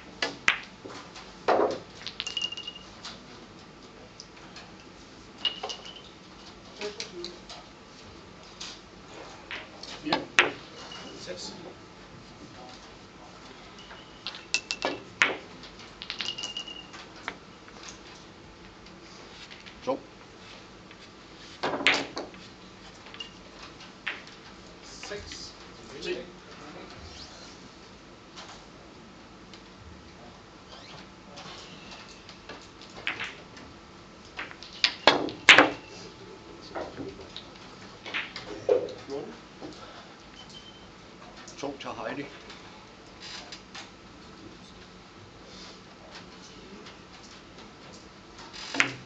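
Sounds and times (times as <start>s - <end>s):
billiard balls clicking: 0.1s - 3.2s, 5.4s - 6.7s, 9.5s - 10.8s, 13.9s - 19.8s, 21.6s - 24.6s, 32.0s - 35.9s, 36.7s - 39.2s, 47.0s - 49.0s
short ringing tone: 2.3s - 2.9s, 16.3s - 17.0s.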